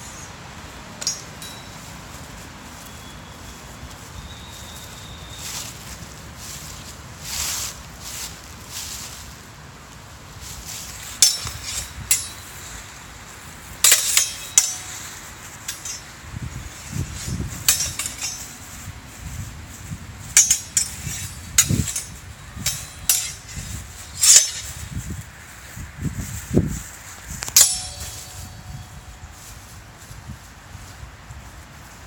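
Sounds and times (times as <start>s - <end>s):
sword blades clashing: 1.0s - 1.8s, 11.0s - 12.7s, 13.8s - 16.1s, 17.5s - 18.9s, 20.3s - 25.0s, 27.5s - 28.9s.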